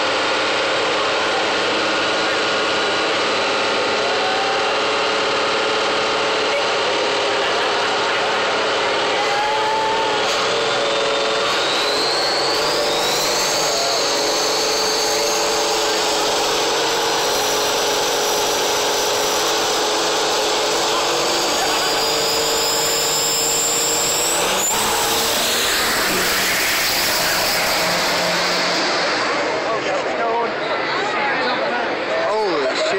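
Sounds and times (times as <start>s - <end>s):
diesel engine revving hard: 0.0s - 32.9s
high turbo whistle: 9.2s - 17.7s, 19.0s - 29.8s.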